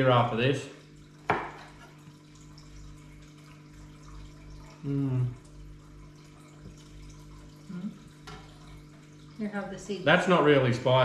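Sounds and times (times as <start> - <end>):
man humming mmm: 4.8 - 5.4.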